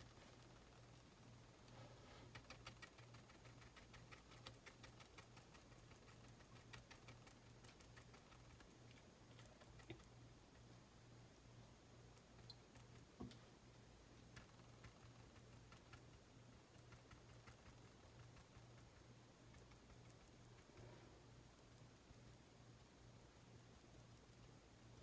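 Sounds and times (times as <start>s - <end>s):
low steady hum: 0.0s - 25.0s.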